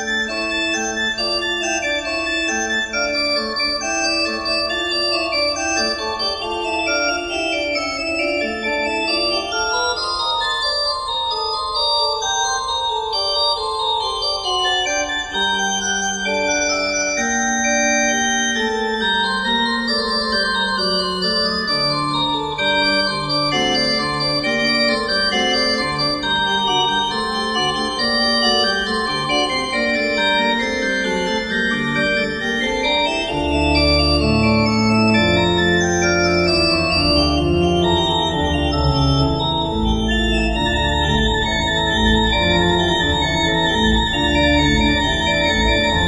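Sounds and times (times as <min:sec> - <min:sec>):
organ chords: 0:00.0 - 0:46.0
deep organ bass notes: 0:31.6 - 0:46.0.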